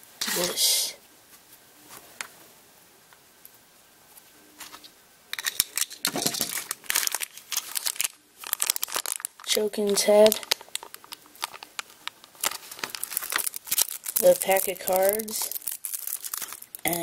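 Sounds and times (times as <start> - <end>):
plastic bag crinkling: 5.4 - 17.0.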